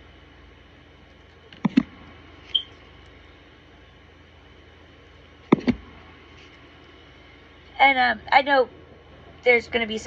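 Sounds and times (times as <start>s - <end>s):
faint room hum: 0.0s - 10.0s
cards tapping: 5.5s - 5.8s.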